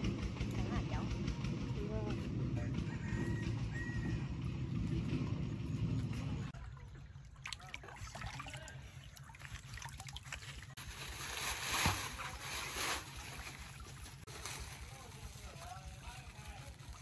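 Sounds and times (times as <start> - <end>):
water splashing and sloshing: 4.4 - 17.0.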